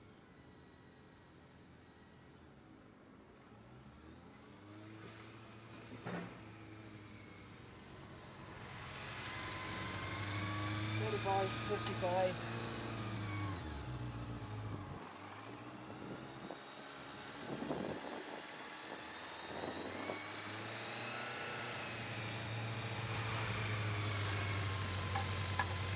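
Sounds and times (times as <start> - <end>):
motorcycle engine: 5.8 - 25.9.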